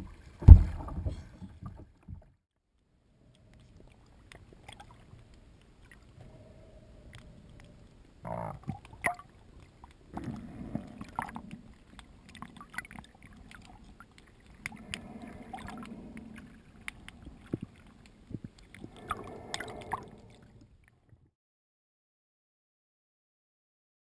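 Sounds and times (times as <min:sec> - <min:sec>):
underwater rushing noise: 0:08.9 - 0:20.6.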